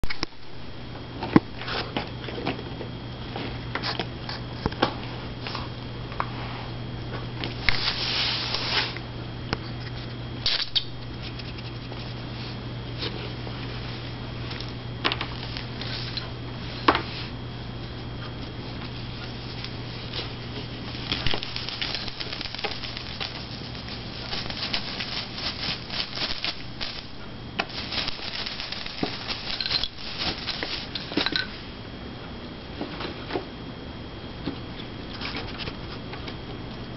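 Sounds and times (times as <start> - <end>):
steady low hum: 0.0 - 36.9
kittens scratching and tapping: 18.2 - 31.4.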